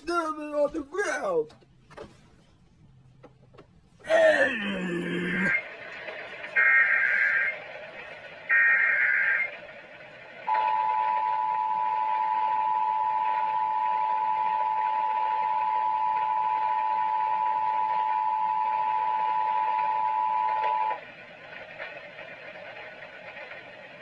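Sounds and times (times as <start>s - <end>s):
warbling digital data burst: 8.5s - 9.5s.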